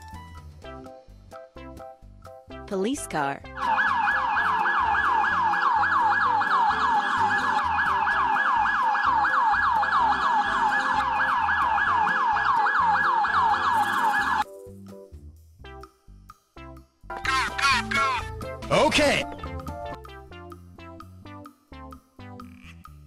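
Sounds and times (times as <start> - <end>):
toy electronic siren wailing: 3.6 - 14.4.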